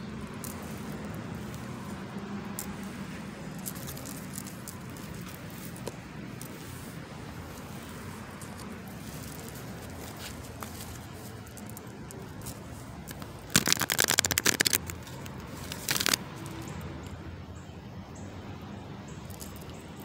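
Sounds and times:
cards being shuffled: 8.4 - 16.6.

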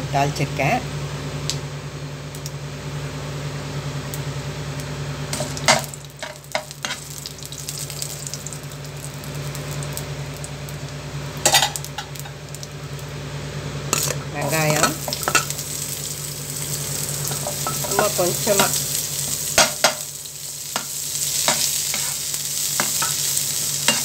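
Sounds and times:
seeds sizzling in hot oil: 4.1 - 24.0.

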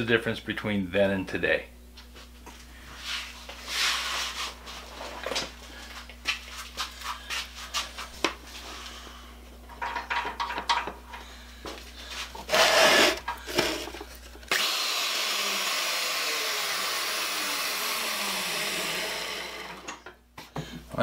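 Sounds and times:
router motor whirring: 12.5 - 13.9, 14.5 - 20.0.

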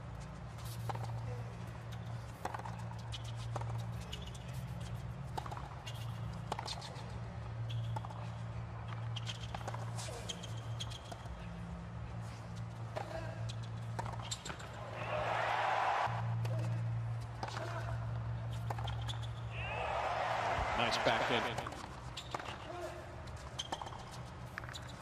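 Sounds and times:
players' footsteps: 18.5 - 25.0.

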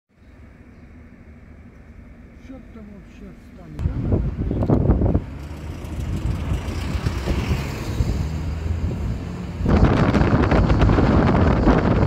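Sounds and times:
car road and engine rumble: 0.1 - 12.0
wind buffeting microphone: 3.8 - 12.0.

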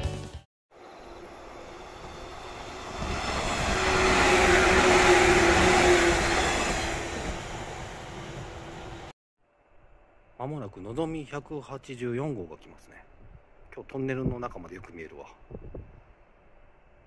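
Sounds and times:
train whine: 0.7 - 11.0
train wheels rumbling on rails: 0.8 - 9.1.

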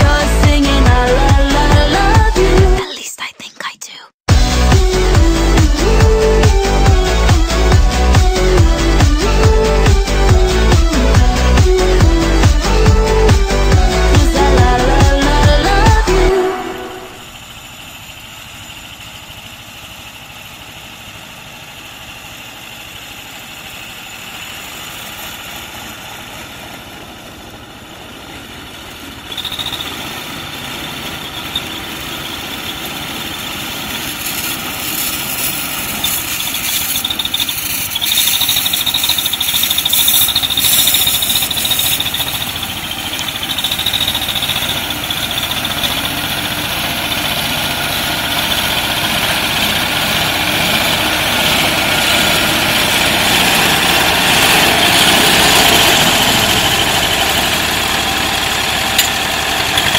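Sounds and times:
tractor diesel engine running: 0.0 - 2.8, 4.3 - 59.9
steady high whine: 23.0 - 59.9.

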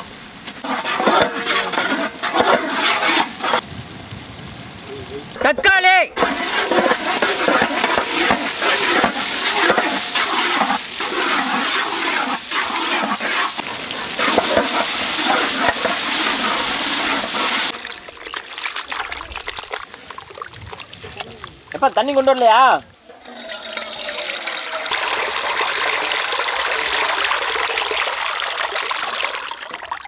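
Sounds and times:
tomatoes sizzling in oil: 0.0 - 20.4, 21.1 - 30.0.

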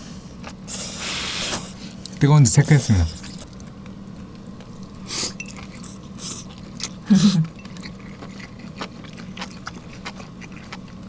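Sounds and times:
person chewing with wet mouth sounds: 0.3 - 0.8, 3.1 - 11.0
person humming: 7.0 - 7.6.

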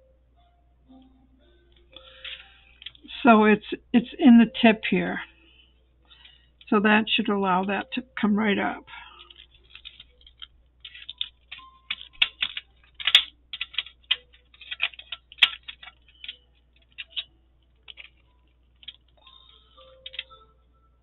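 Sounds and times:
plastic clicks and taps: 9.3 - 18.2.

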